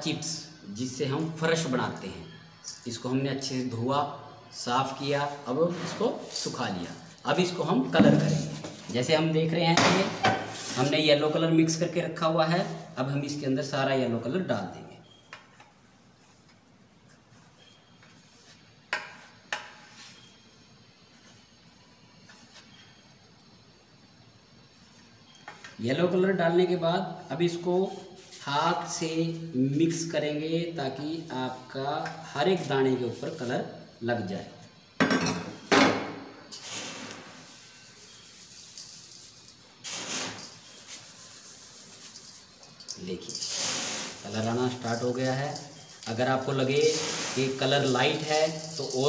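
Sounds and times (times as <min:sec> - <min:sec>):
hands rubbing gritty chips in bowl: 0:37.5 - 0:49.0
chips clattering in steel bowl: 0:37.9 - 0:49.0
tool clinking on steel tray: 0:46.8 - 0:49.0.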